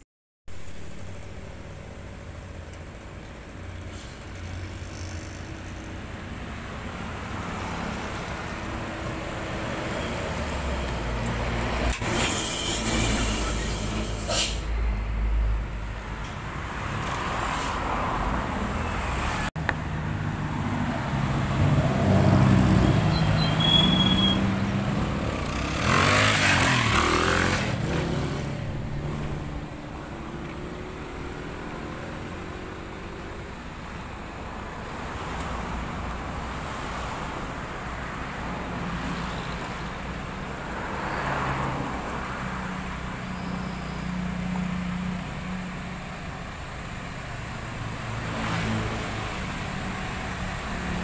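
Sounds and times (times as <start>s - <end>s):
air brake hissing: 3.8s - 4.3s, 12.0s - 14.8s.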